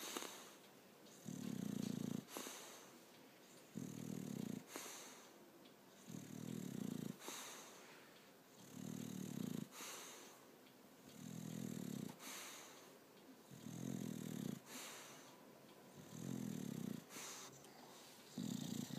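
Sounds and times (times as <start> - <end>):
dog snoring: 0.0 - 2.8, 3.7 - 5.3, 6.0 - 7.7, 8.5 - 10.3, 11.1 - 12.8, 13.4 - 15.3, 15.9 - 17.6, 18.3 - 18.9
hiss of breath: 4.7 - 5.4, 7.2 - 8.0, 12.2 - 12.9.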